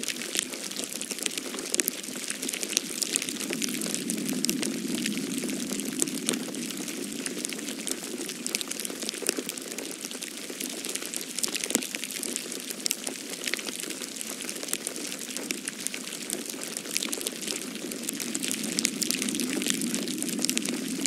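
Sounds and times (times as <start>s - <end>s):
wet snow pattering on leaves: 0.0s - 21.0s
low steady rush: 2.0s - 9.2s, 17.2s - 21.0s.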